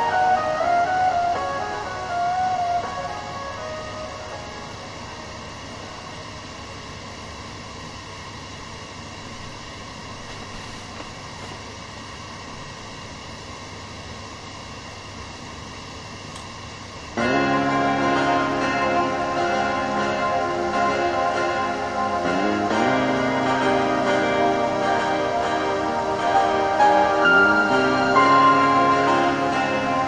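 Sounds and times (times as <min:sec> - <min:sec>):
music backing track: 0:00.0 - 0:06.4, 0:17.2 - 0:30.0
steady background hiss: 0:00.0 - 0:30.0.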